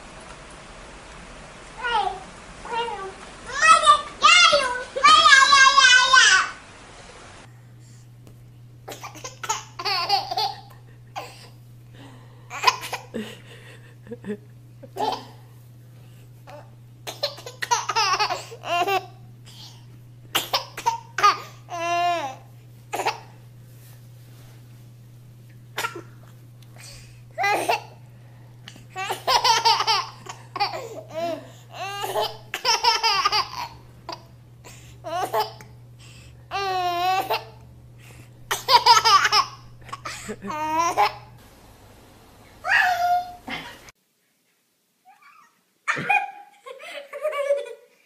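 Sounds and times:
low steady hum: 0.0 - 44.0
baby laughing: 8.9 - 11.5, 12.5 - 13.3, 14.2 - 15.4, 16.5 - 23.3, 27.4 - 28.0, 29.0 - 34.4, 35.1 - 35.7, 36.5 - 37.6, 38.5 - 41.3, 45.1 - 48.0.

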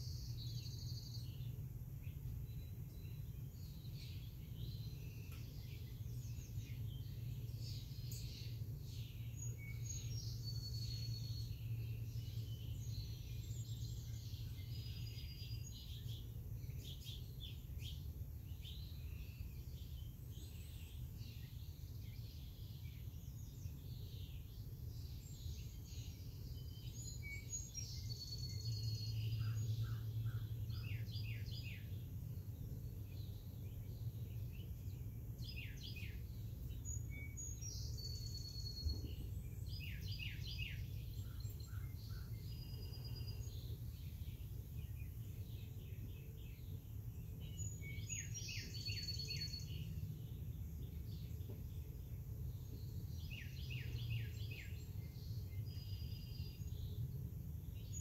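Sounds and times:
songbirds chirping and whistling: 0.0 - 58.0.

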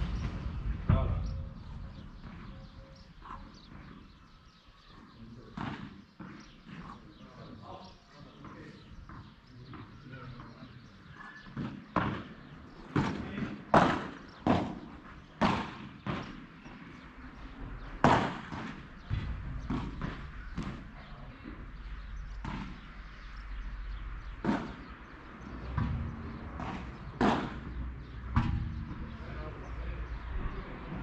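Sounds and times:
low rumble: 0.0 - 3.1
ball hitting padel rackets: 0.0 - 4.1, 5.2 - 23.6, 24.2 - 29.3
ball bouncing on court: 11.5 - 16.4, 18.0 - 21.8, 22.4 - 23.0, 24.4 - 29.1.

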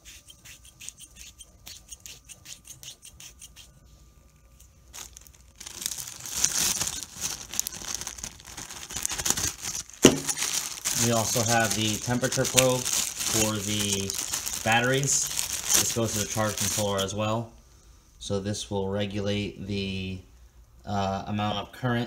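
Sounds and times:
plastic bag crinkling: 4.9 - 17.2.

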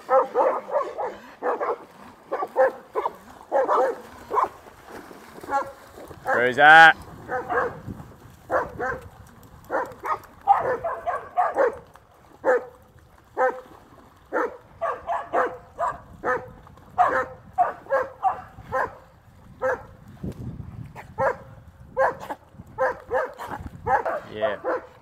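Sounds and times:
dog barking: 0.1 - 4.6, 5.5 - 6.5, 7.3 - 7.8, 8.5 - 9.0, 9.7 - 11.8, 12.4 - 12.7, 13.4 - 13.6, 14.3 - 19.0, 19.6 - 19.9, 21.2 - 25.0.

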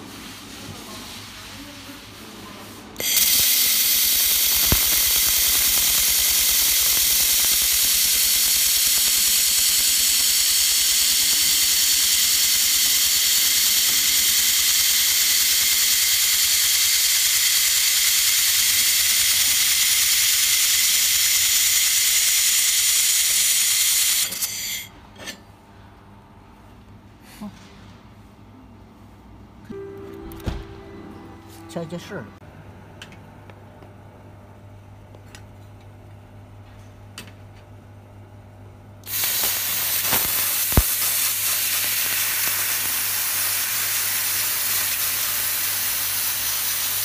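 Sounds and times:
laser welder hissing: 3.0 - 24.9, 39.0 - 47.0.

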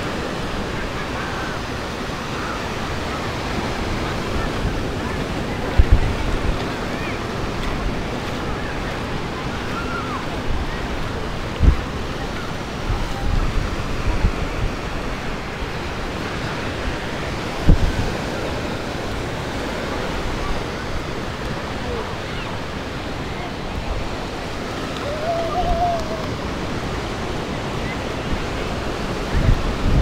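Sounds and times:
ocean surf washing: 0.0 - 30.0
wind buffeting microphone: 0.0 - 30.0.

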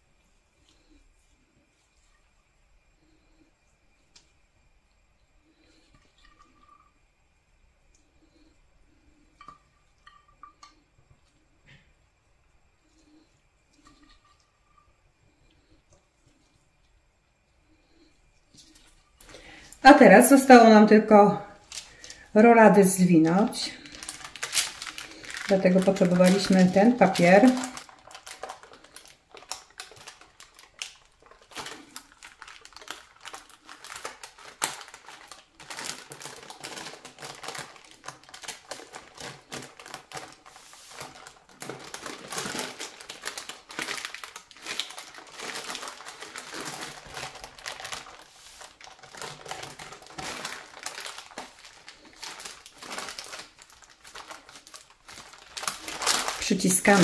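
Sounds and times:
baking parchment crinkling: 18.6 - 57.0.

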